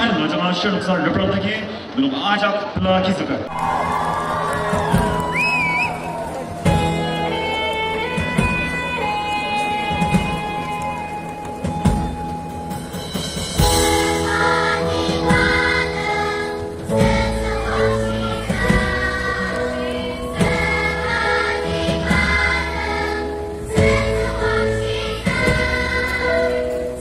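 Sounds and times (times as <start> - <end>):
live band with drums and bass: 4.6 - 22.9
children's choir singing: 13.6 - 27.0.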